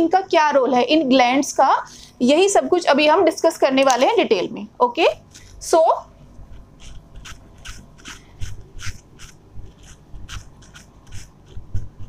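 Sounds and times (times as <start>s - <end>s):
eraser rubbing on whiteboard: 6.4s - 12.0s.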